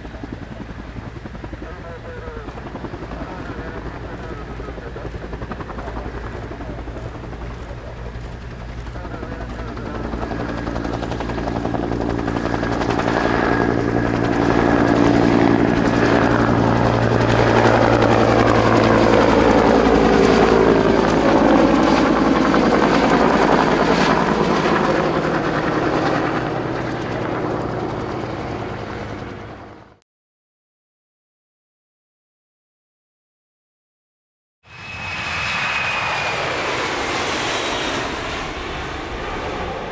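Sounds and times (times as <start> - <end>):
helicopter rotor beat: 0.0 - 30.0, 34.7 - 39.9
helicopter turbine whine: 0.0 - 30.0, 34.7 - 39.9.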